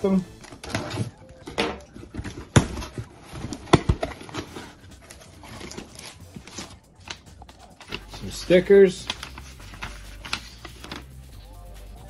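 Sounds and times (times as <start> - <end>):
cardboard flaps tearing and rustling: 2.1 - 7.2.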